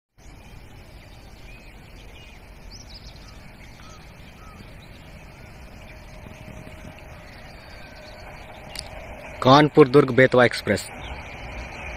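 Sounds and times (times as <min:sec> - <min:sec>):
birds chirping and whistling: 0:00.2 - 0:09.4, 0:10.9 - 0:11.9
steady low rumble: 0:00.2 - 0:11.9.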